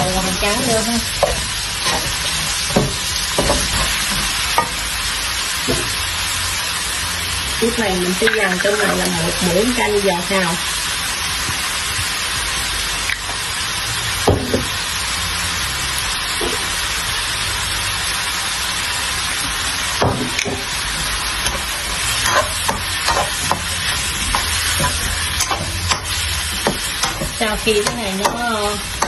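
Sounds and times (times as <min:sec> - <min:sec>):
metal spatula scraping a pan: 0:00.0 - 0:04.9, 0:20.3 - 0:29.0
vegetables sizzling in a wok: 0:00.0 - 0:29.0.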